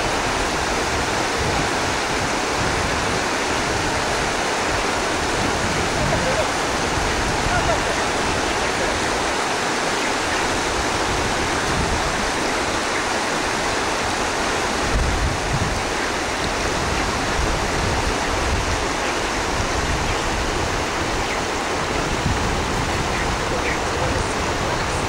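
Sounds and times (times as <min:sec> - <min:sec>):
river water rushing over rocks: 0:00.0 - 0:25.0.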